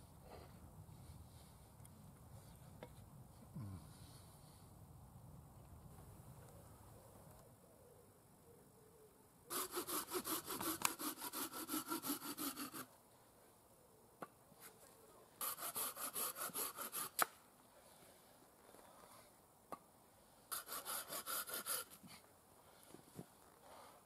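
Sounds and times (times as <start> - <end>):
hand saw cutting wood: 9.5 - 12.9, 15.4 - 17.3, 20.5 - 22.0.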